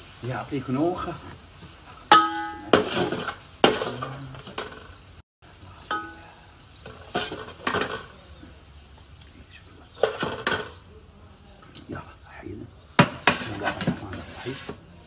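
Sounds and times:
spoon clinking on metal pot: 5.9s - 6.3s.

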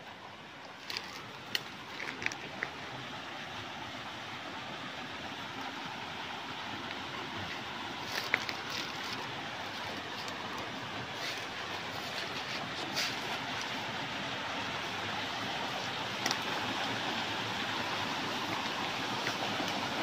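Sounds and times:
waterfall rushing: 8.9s - 20.0s.

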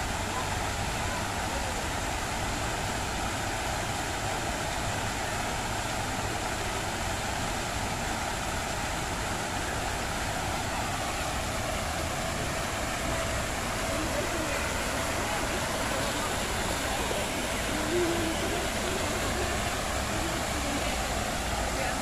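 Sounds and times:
fountain water splashing: 0.0s - 22.0s.

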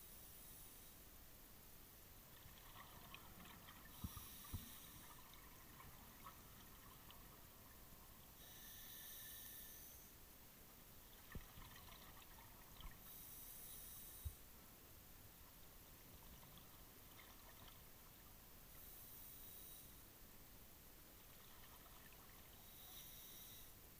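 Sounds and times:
underwater regulator breathing: 3.8s - 5.4s.

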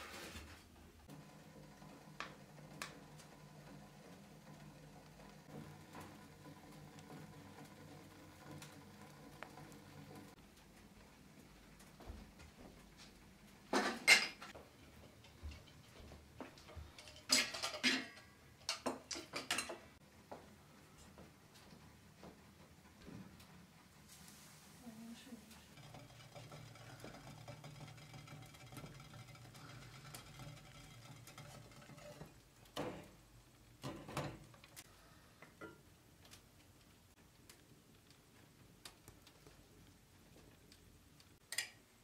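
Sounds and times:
dishes clattering on wooden table: 13.7s - 20.0s
metal knocks and scrapes: 25.4s - 33.2s.

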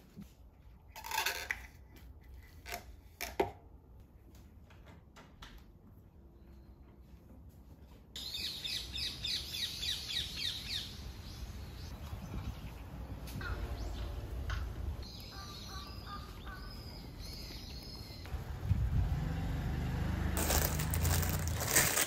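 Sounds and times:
small birds chirping: 8.2s - 18.3s.

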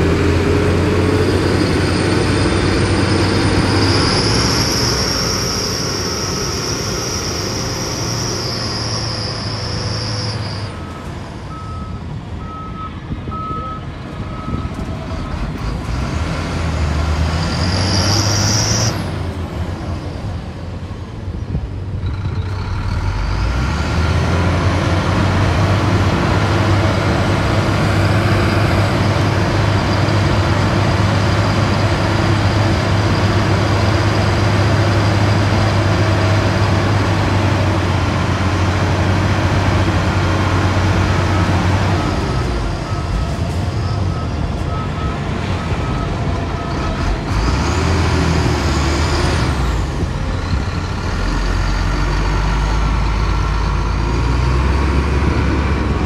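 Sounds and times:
heavy diesel engines: 0.0s - 56.0s
reversing alarm beeping: 0.2s - 15.4s, 41.9s - 47.2s.

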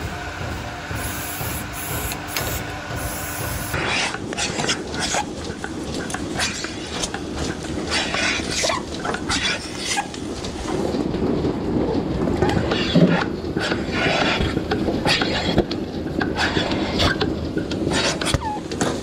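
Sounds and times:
machine hum with several tones: 0.0s - 4.2s
steady low rumble: 0.0s - 17.9s.

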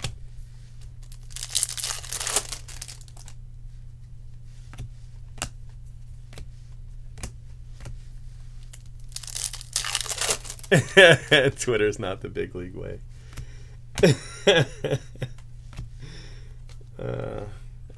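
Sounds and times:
wrapper crinkling and tearing: 1.0s - 3.3s, 8.7s - 10.8s
cards flipping and clicking: 4.7s - 5.6s, 7.1s - 8.0s, 8.6s - 10.7s, 15.4s - 15.9s.

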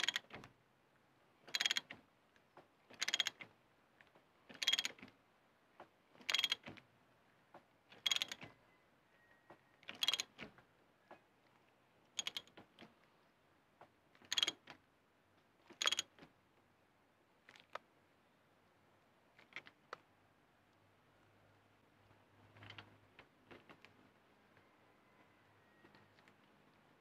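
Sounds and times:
ratchet wrench clicking: 6.3s - 6.6s, 14.3s - 14.5s.

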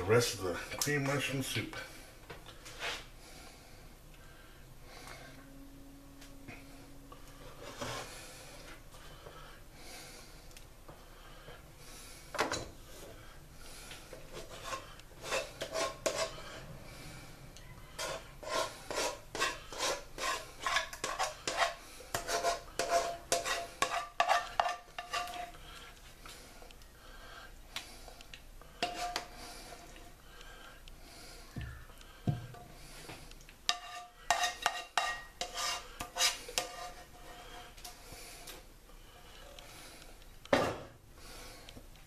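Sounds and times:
metal spoon scraping can: 18.0s - 25.5s, 33.7s - 37.4s.

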